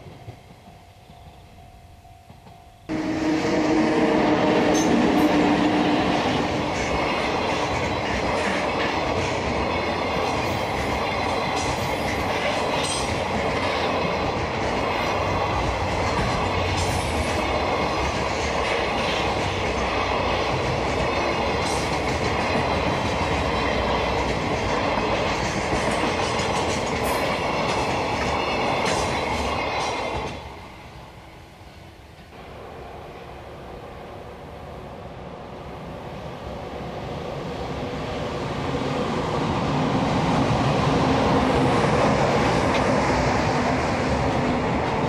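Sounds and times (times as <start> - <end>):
train wheels clattering over rail joints: 4.6 - 30.6.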